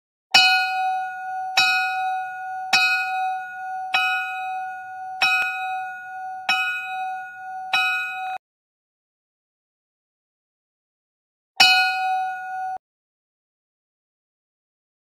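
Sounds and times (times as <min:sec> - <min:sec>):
bell striking: 0:00.4 - 0:08.4, 0:11.6 - 0:12.8.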